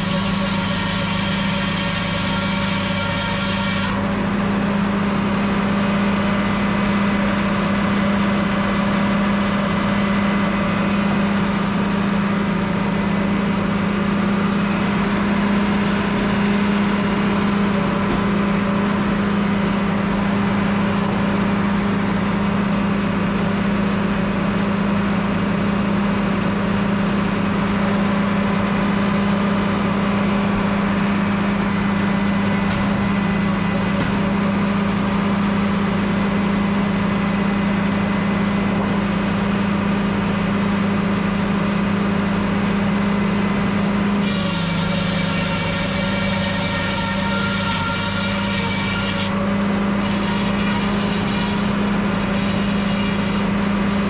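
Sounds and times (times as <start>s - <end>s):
sawmill engine running: 0.0s - 54.0s
saw blade spinning hum: 44.2s - 54.0s.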